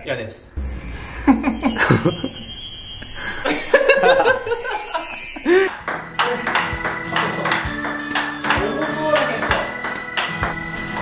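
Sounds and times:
high twinkling chime: 0.0 - 5.7
man laughing: 1.2 - 2.4, 3.3 - 5.7.

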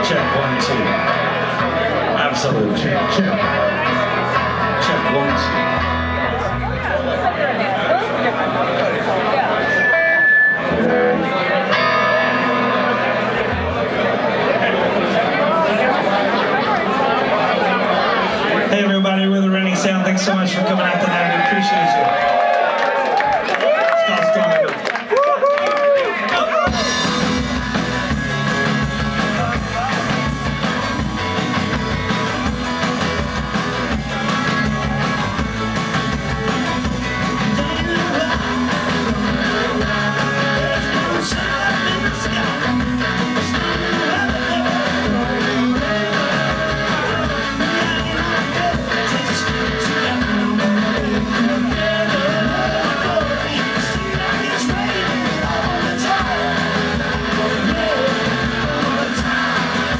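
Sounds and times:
rock band playing live: 0.0 - 25.0, 25.8 - 59.9
drum kit: 26.6 - 59.9
man singing: 37.2 - 59.9.

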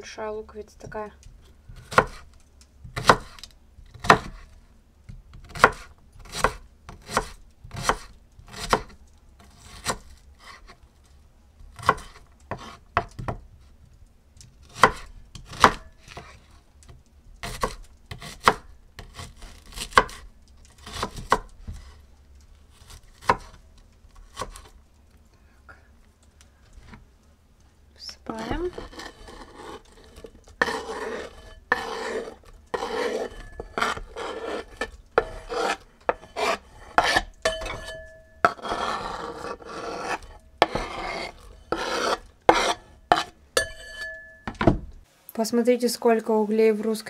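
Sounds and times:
knife dicing onion on wooden board: 1.8 - 2.3, 2.9 - 4.6, 5.3 - 10.7, 11.7 - 13.4, 14.6 - 16.4, 17.4 - 21.9, 22.8 - 23.6, 24.3 - 24.7, 28.4 - 44.8.

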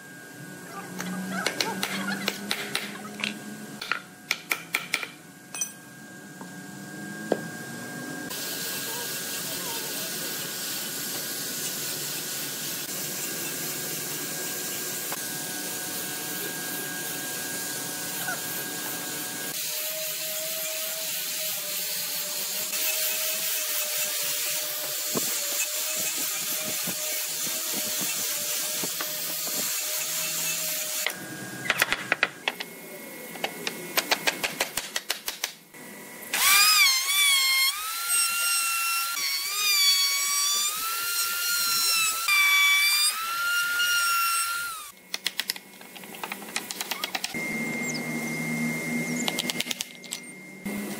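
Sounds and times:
angle grinder sanding wood: 8.3 - 31.2, 36.4 - 45.0
electric router whining: 35.8 - 45.0, 46.9 - 50.9.

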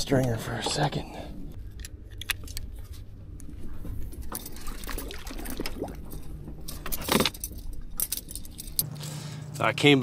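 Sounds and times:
fish splashing in water: 4.6 - 6.1
metal stringer clinking: 6.2 - 8.9.

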